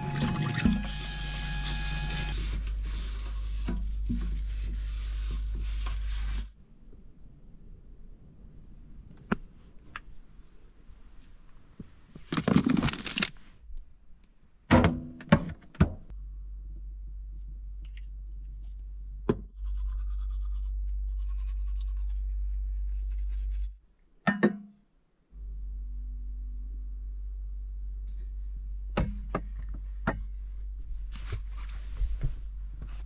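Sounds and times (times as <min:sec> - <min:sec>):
steady low hum: 0:16.1 - 0:23.7, 0:25.4 - 0:33.0
short rustle: 0:31.0 - 0:33.0.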